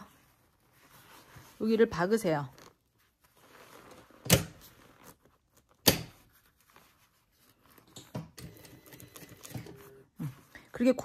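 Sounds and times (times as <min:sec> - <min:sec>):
fabric rustling: 0:00.0 - 0:08.0.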